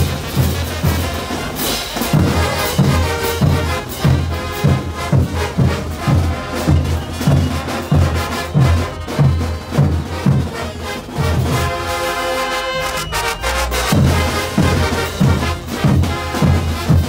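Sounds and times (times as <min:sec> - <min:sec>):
brass horns playing: 0:00.0 - 0:17.0
snare drums: 0:00.0 - 0:17.0
bass drums beating: 0:01.9 - 0:11.8, 0:13.4 - 0:17.0.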